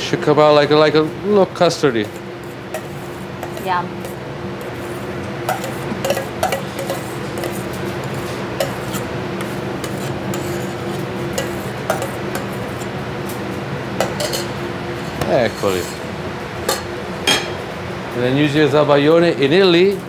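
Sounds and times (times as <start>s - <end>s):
kitchen hum: 0.0s - 20.0s
metal spoon scraping bowl: 2.0s - 12.9s, 14.0s - 16.0s.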